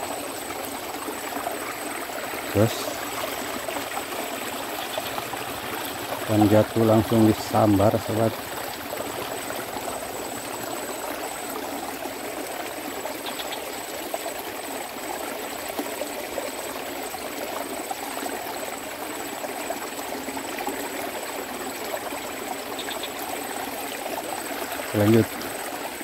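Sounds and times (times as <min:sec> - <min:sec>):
water rushing: 0:00.0 - 0:26.0.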